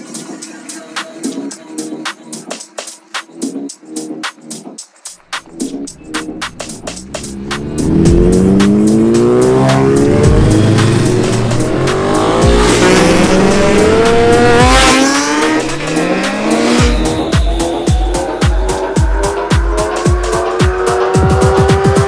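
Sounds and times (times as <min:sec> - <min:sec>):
electronic music with kick drum: 0:00.0 - 0:22.0
motorcycle engines revving: 0:05.9 - 0:22.0.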